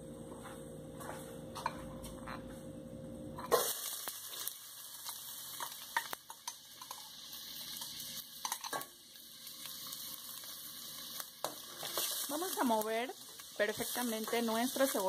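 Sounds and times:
low steady hum: 0:00.0 - 0:03.7
onion sizzling in hot oil: 0:03.4 - 0:15.0.

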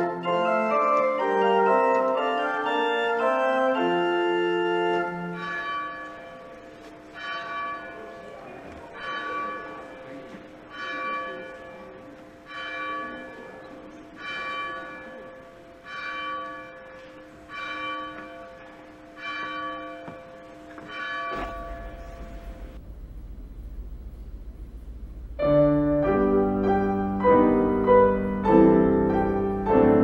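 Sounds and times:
church bell tolling: 0:00.0 - 0:23.4, 0:25.0 - 0:30.0
low hum: 0:21.4 - 0:29.8.

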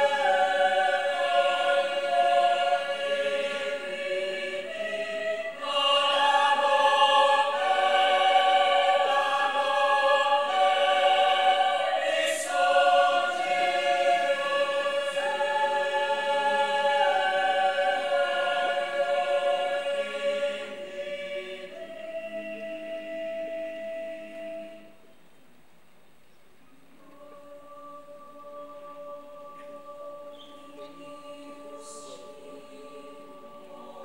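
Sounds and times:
mixed choir singing: 0:00.0 - 0:25.0, 0:27.0 - 0:34.0.

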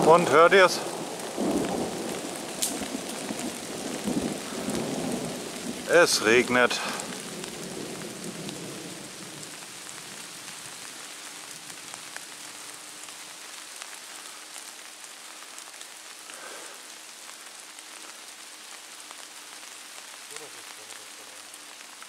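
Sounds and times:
rain falling on foliage: 0:00.0 - 0:22.0.

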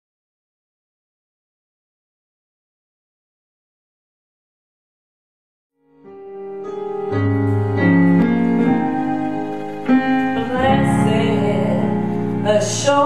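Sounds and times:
electronic keyboard piano chords: 0:05.8 - 0:13.0
low bass notes: 0:06.8 - 0:13.0.

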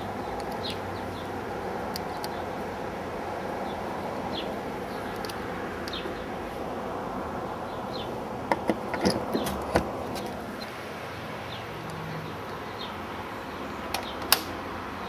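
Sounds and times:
steady hiss: 0:09.8 - 0:15.0.

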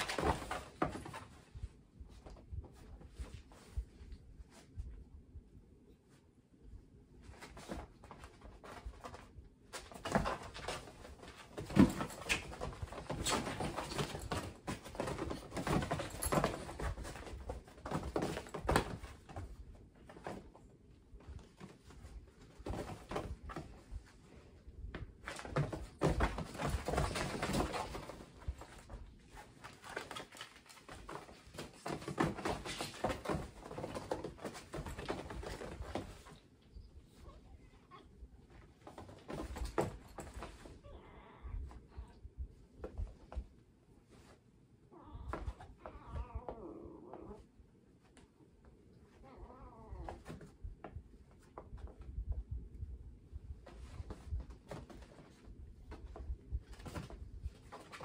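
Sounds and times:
kittens scuffling and thumping: 0:00.0 - 0:58.0.

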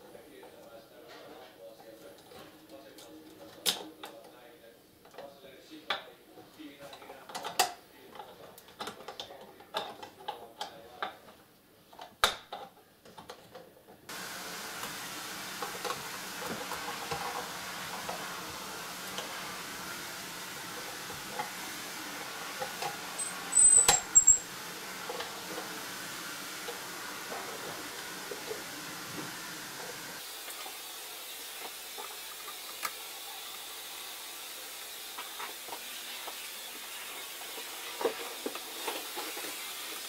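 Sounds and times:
steady hiss: 0:14.1 - 0:40.0.

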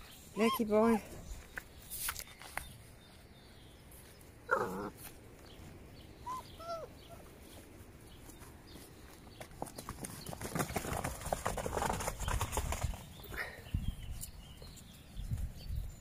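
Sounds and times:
puppy yelping: 0:00.4 - 0:00.8, 0:06.2 - 0:07.3
puppy squeaking: 0:00.4 - 0:00.9, 0:06.2 - 0:07.3.

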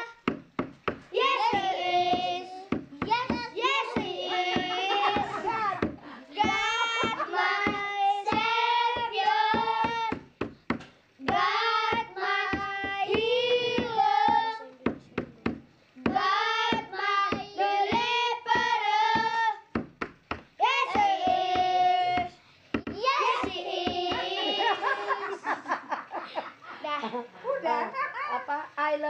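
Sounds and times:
children singing in unison: 0:01.1 - 0:10.3, 0:11.2 - 0:14.7, 0:16.0 - 0:19.7, 0:20.6 - 0:25.6.

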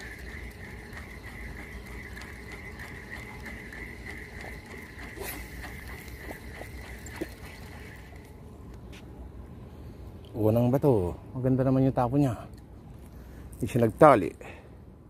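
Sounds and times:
fishing reel whirring: 0:00.0 - 0:08.5.

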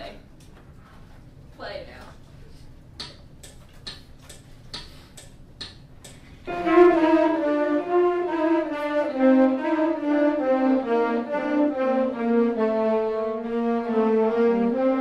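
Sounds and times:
metronome clicking: 0:03.0 - 0:06.2
saxophones playing held notes: 0:06.4 - 0:15.0.

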